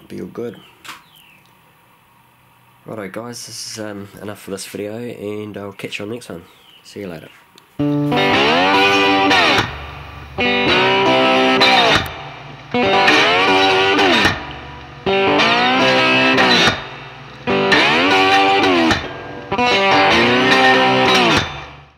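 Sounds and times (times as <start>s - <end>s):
electric guitar music: 7.8s - 21.9s.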